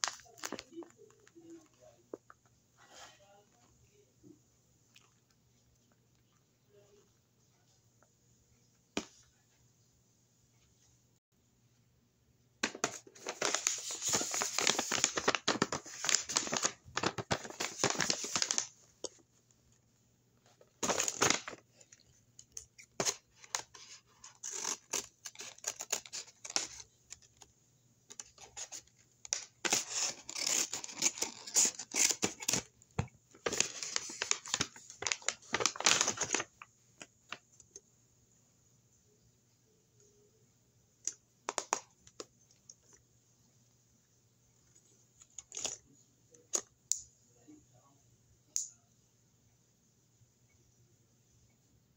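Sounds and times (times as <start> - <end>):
paper crinkling and rustling: 0.0 - 1.7, 12.6 - 19.2, 20.5 - 22.0, 22.7 - 27.5, 28.1 - 32.7, 33.4 - 36.6
scissors cutting paper: 23.0 - 26.8, 29.7 - 32.7.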